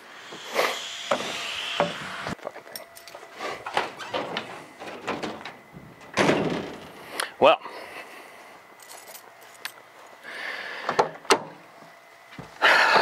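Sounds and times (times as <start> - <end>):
steady noise: 0.0 - 2.4.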